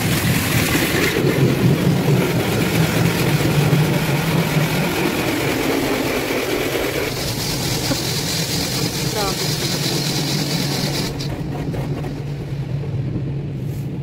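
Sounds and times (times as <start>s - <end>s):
car wash machinery hum: 0.0s - 14.0s
brushes and water hissing: 6.2s - 11.4s.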